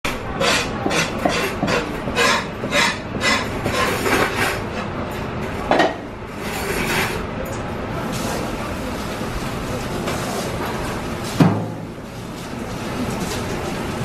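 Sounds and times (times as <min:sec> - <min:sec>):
steady background noise: 0:00.1 - 0:14.0.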